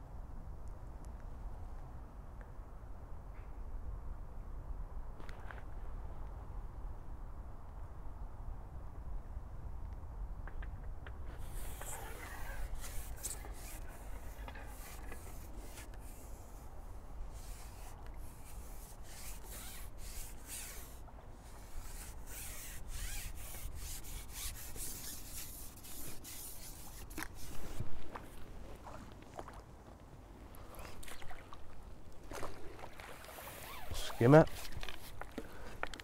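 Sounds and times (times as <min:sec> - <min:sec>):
rubbing and scraping: 0:11.3 - 0:28.2.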